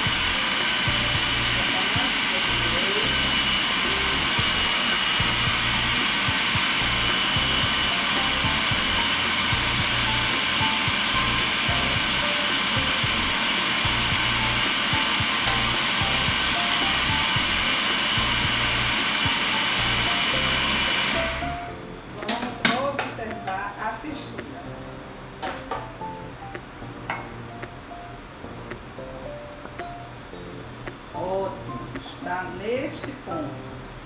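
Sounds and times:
food processor running: 0.0 - 21.7.

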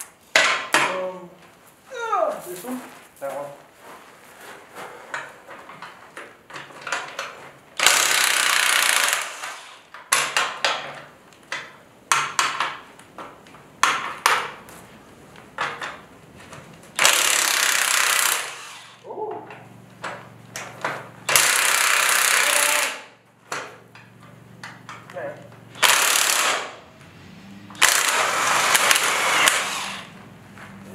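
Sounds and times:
impact wrench hammering: 0.3 - 1.0, 7.8 - 11.0, 11.6 - 12.8, 17.0 - 18.8, 20.0 - 25.0, 25.7 - 26.9, 27.7 - 30.1.

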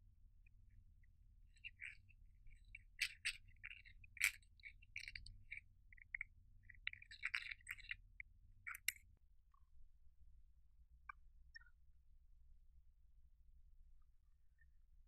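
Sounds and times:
dry scratching of eyeshadow: 1.6 - 6.2, 6.8 - 8.0.

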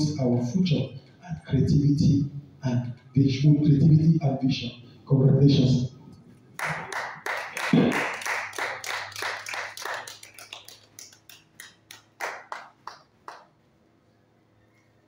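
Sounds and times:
hands clapping in applause: 6.6 - 13.5.

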